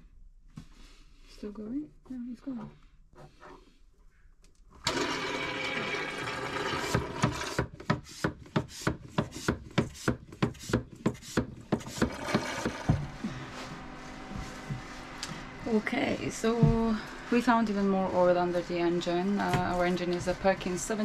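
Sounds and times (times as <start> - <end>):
pump sucking and pulsing: 4.8 - 7.5, 11.8 - 21.0.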